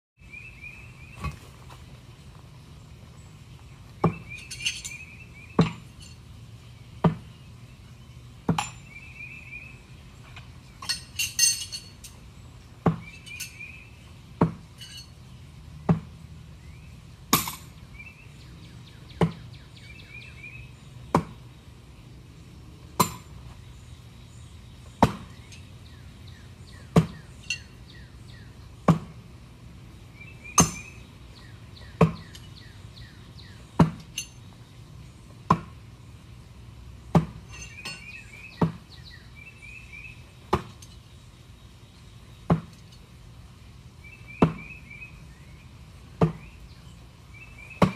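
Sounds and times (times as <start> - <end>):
throwing knives hitting wooden target: 1.2 - 1.8, 3.9 - 5.0, 5.6 - 6.2, 7.0 - 7.3, 8.4 - 8.9, 12.8 - 13.5, 14.4 - 15.1, 15.8 - 16.1, 21.1 - 21.4, 25.0 - 25.6, 26.9 - 27.7, 28.9 - 29.2, 32.0 - 32.5, 33.8 - 34.4, 35.4 - 35.8, 37.1 - 38.9, 40.4 - 41.0, 42.4 - 43.0, 46.2 - 46.5.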